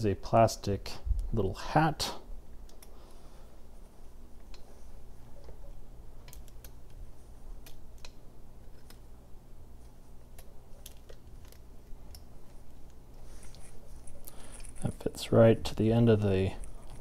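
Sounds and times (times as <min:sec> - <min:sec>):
steady low hum: 0:00.0 - 0:17.0
small metal and plastic parts clicking: 0:13.5 - 0:15.0.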